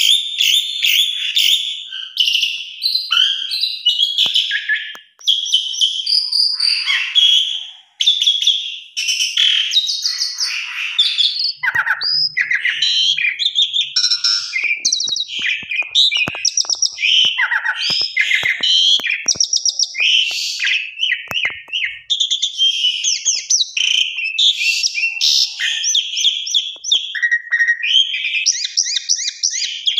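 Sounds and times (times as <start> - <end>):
starling singing: 0.0 - 29.9
sharp little clicks: 14.5 - 22.0.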